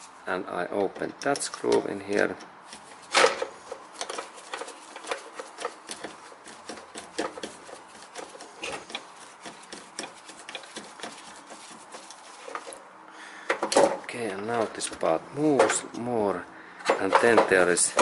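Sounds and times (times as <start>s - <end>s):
screwdriver clicks and scrapes: 1.2s - 12.8s.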